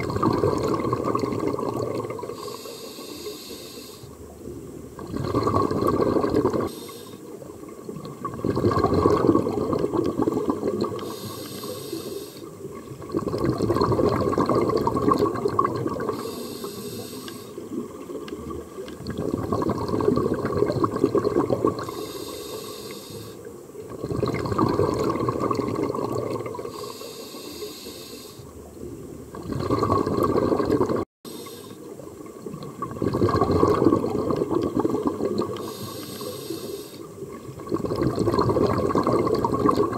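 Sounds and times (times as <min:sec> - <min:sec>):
exhaled bubbles gurgling underwater: 0:00.0 - 0:39.9
regulator inhalation hiss: 0:02.4 - 0:04.2, 0:06.7 - 0:07.4, 0:11.0 - 0:12.6, 0:16.1 - 0:17.6, 0:21.8 - 0:23.5, 0:26.7 - 0:28.5, 0:31.3 - 0:32.0, 0:35.6 - 0:37.2.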